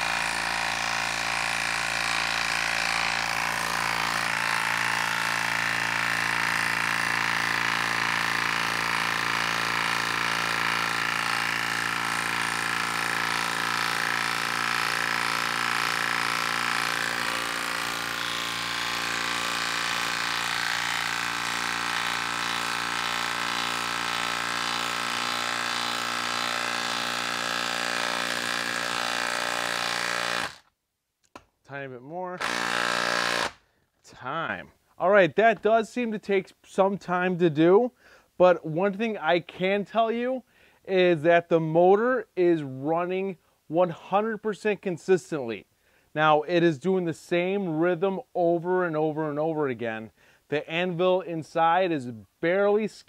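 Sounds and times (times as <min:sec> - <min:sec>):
impact wrench hammering: 0:00.0 - 0:30.7, 0:32.4 - 0:33.6.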